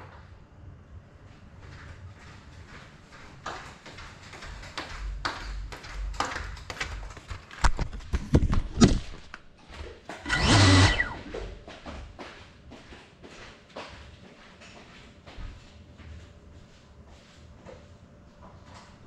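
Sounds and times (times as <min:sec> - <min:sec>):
knocks and scuffs on tile floor: 0:01.7 - 0:16.2
drone motors whirring: 0:10.2 - 0:11.6.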